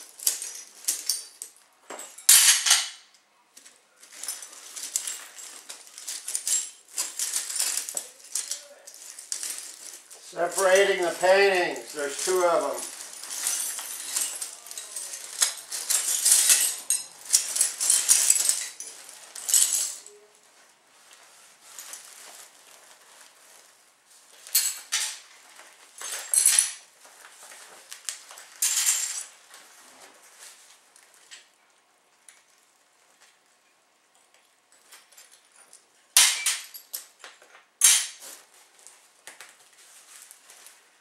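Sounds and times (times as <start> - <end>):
broken glass clinking and scraping: 0.0 - 3.1, 4.0 - 20.3, 24.4 - 26.9, 27.9 - 29.4, 34.7 - 37.2, 37.8 - 38.4
plastic sheeting crinkling: 3.6 - 31.4, 38.2 - 41.0.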